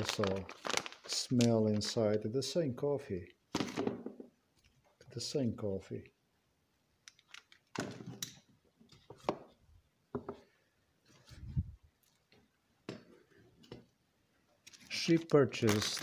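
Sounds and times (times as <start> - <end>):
foil packets rustling: 0.0 - 2.2, 14.7 - 16.0.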